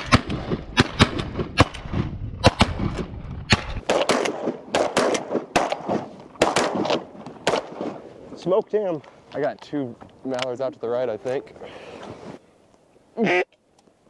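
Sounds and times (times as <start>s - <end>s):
shotgun shots: 0.0s - 8.0s.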